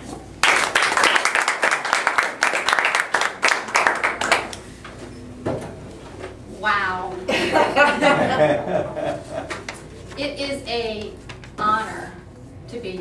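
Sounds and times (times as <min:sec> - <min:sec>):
audience applauding: 0:00.4 - 0:04.6.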